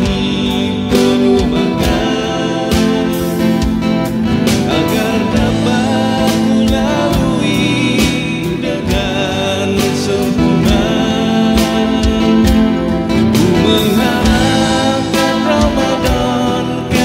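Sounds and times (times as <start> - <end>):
acoustic guitar strumming: 0.0 - 17.0
electronic drum beat: 0.0 - 17.0
person singing: 0.0 - 17.0.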